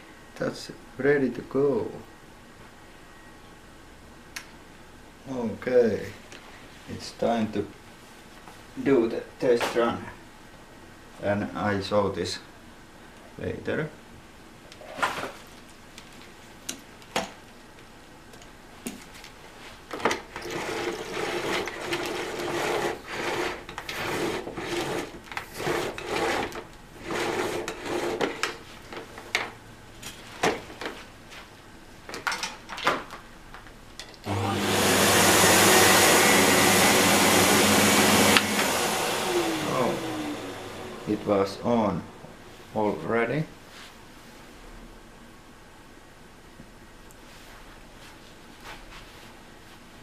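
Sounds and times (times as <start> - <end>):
vacuum cleaner motor running: 20.4 - 28.3, 34.2 - 42.4.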